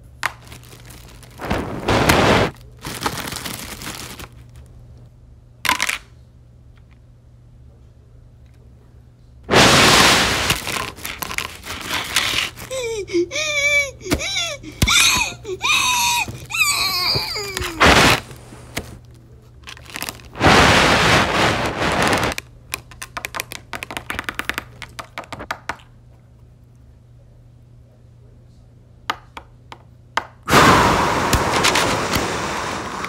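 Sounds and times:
loud rushing hiss burst: 0:01.4 - 0:02.5, 0:09.5 - 0:10.6, 0:20.4 - 0:22.3, 0:30.5 - 0:33.0
high wavering vocal cries: 0:12.6 - 0:18.1.

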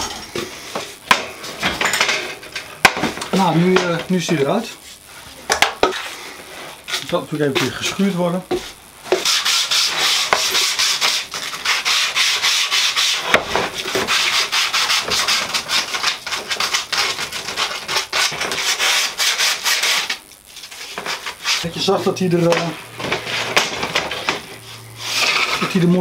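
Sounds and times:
sandpaper rubbing on wood: 0:09.1 - 0:23.6, 0:24.2 - 0:26.0.

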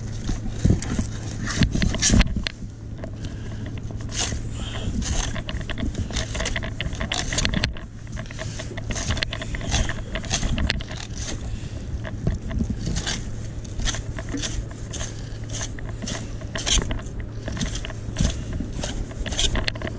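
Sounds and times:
low hum: 0:00.0 - 0:19.9
knife scraping fish bones: 0:08.2 - 0:11.4, 0:12.7 - 0:19.9.

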